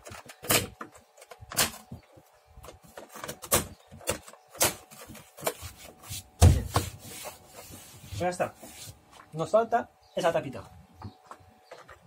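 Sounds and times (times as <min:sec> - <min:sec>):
door panel thump: 0:06.4 - 0:06.9.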